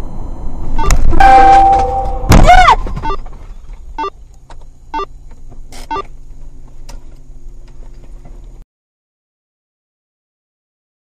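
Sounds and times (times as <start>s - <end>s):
short electronic beeps: 0.0s - 3.3s, 4.0s - 4.2s, 4.8s - 5.2s, 5.8s - 6.1s
car cabin hum: 0.0s - 8.6s.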